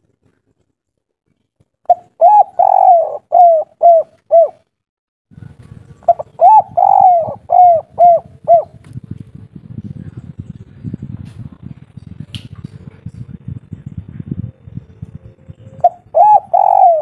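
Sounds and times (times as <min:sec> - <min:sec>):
dove cooing: 0:01.9 - 0:04.6, 0:06.0 - 0:08.8, 0:15.5 - 0:17.0
low rumbling noise: 0:05.3 - 0:17.0.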